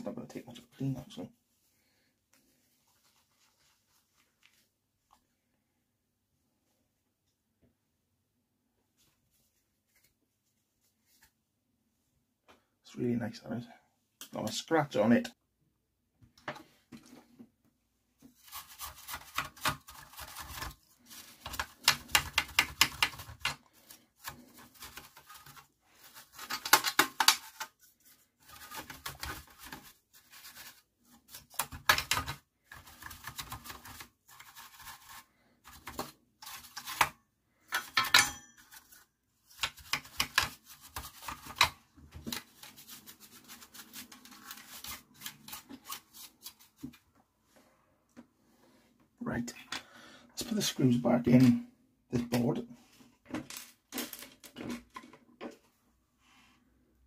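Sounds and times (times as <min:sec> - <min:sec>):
rubbing or scraping: 0:18.2 - 0:47.0.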